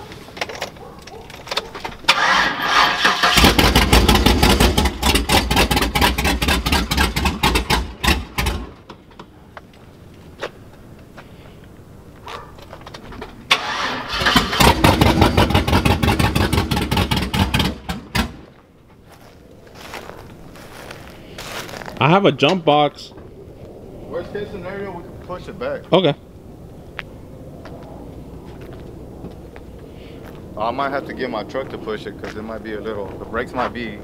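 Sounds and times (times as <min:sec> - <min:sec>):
engine cranking on starter: 0:02.0 - 0:08.9, 0:13.5 - 0:18.4.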